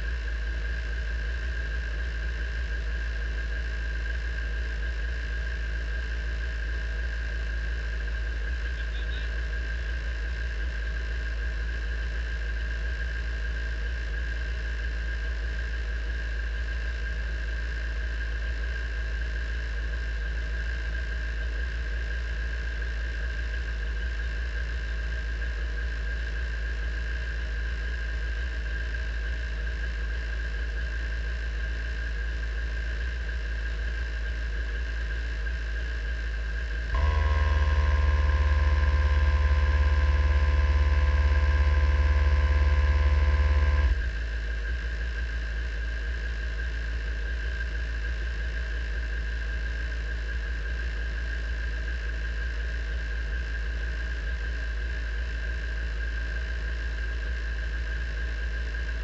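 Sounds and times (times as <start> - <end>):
high-pitched engine whine: 0.0 - 59.0
race car engine idling: 37.0 - 44.1.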